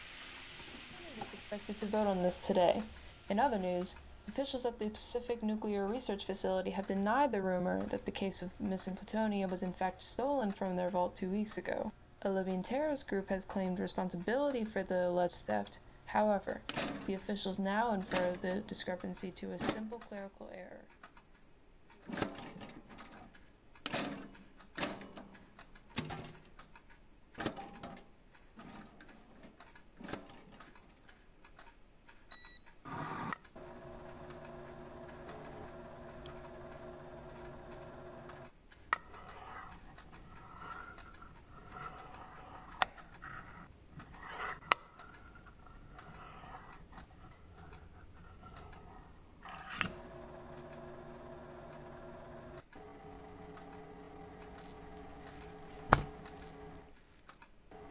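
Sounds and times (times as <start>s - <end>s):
motor hum and whine: 33.6s - 38.5s, 49.8s - 56.9s.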